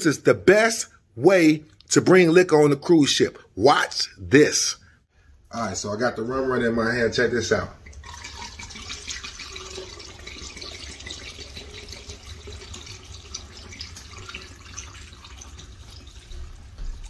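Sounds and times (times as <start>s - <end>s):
liquid pouring through a funnel: 7.8s - 17.0s.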